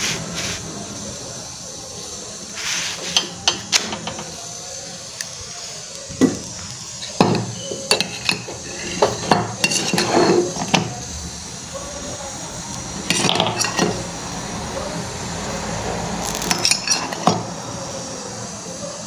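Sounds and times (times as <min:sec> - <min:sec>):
gas burner hiss: 0:00.0 - 0:19.0
metal utensils clinking: 0:07.0 - 0:11.0, 0:13.1 - 0:14.0, 0:16.5 - 0:17.4.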